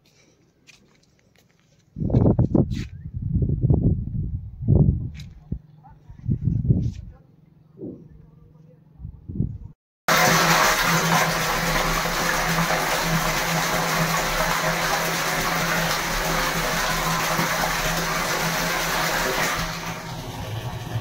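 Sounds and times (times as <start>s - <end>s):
water pouring into tank: 10.1s - 21.0s.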